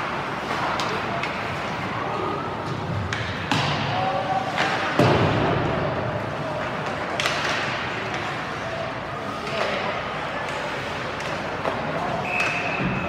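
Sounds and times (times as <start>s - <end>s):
puck and sticks knocking boards: 3.0s - 3.9s, 4.5s - 5.8s, 6.7s - 8.3s.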